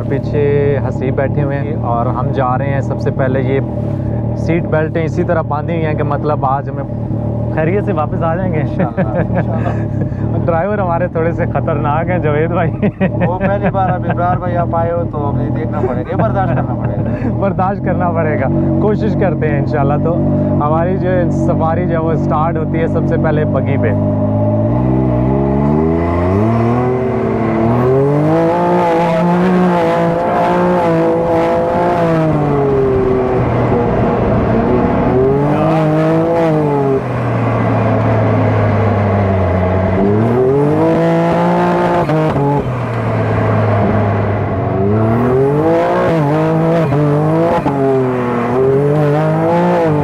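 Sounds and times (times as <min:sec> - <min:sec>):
dune buggy engine revving: 0:00.0 - 0:50.0
wind rushing: 0:30.9 - 0:37.8.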